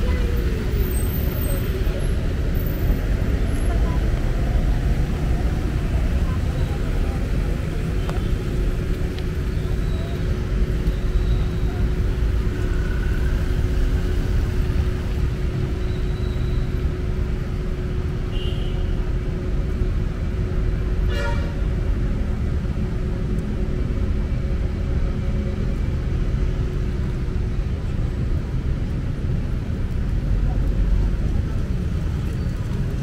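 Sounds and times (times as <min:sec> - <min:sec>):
street and vehicle noise: 0:00.0 - 0:33.0
car horn toot: 0:21.1 - 0:21.6.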